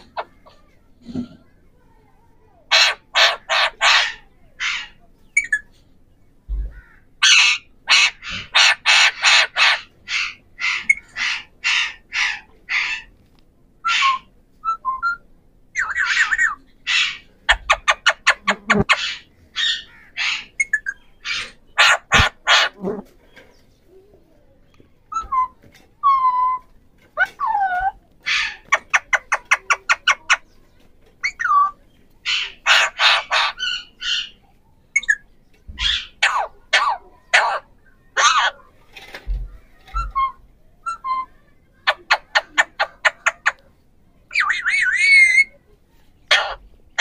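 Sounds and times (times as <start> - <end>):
parakeets chattering: 0.0 - 5.9, 6.5 - 13.2, 13.8 - 24.1, 24.7 - 47.0
parakeets screeching: 2.7 - 5.7, 6.8 - 13.1, 13.8 - 15.2, 15.8 - 22.8, 25.1 - 30.4, 31.2 - 34.4, 35.8 - 38.7, 39.8 - 43.6, 44.3 - 45.6, 46.3 - 47.0.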